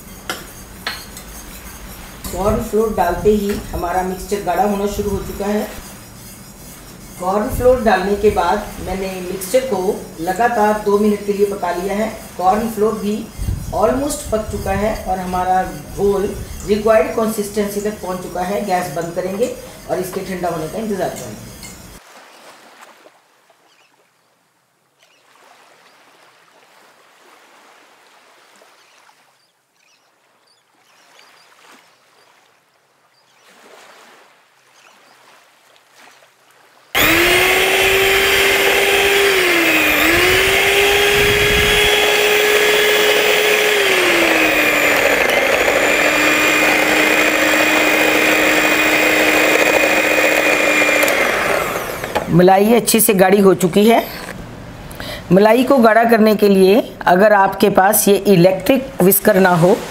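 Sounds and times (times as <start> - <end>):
spoon scraping through strainer: 0.0 - 2.7, 3.4 - 9.7
electric hand mixer running: 37.0 - 52.4.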